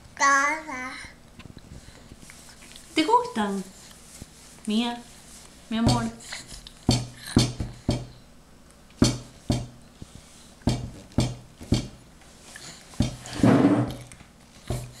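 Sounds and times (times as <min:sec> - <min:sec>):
noisy sound with low tone: 0:00.0 - 0:15.0
sharp knocks on hard surface: 0:05.8 - 0:06.1, 0:06.9 - 0:08.2, 0:09.0 - 0:09.8, 0:10.7 - 0:12.0, 0:13.0 - 0:14.0.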